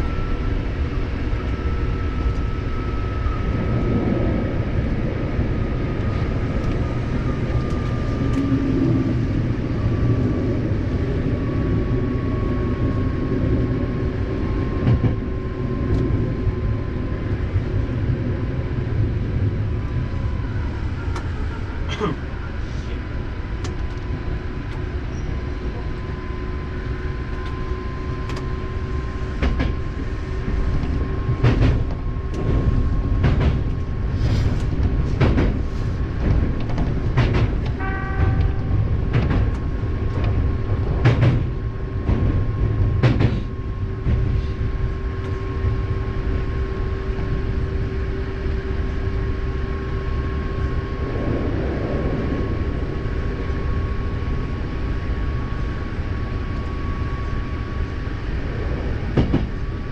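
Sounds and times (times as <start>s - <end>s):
electric train rumble and whine: 0.0s - 59.9s
short ringing tone: 37.8s - 38.7s.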